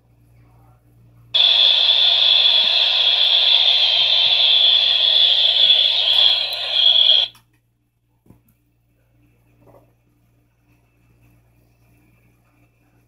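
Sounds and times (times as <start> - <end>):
freight train noise over speaker: 1.4 - 7.3.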